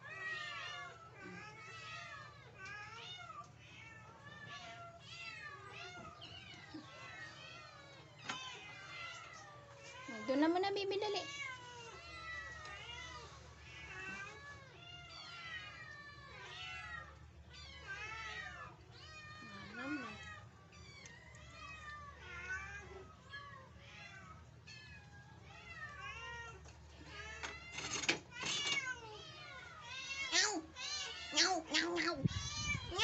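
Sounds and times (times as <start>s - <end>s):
cats meowing: 0.0s - 33.0s.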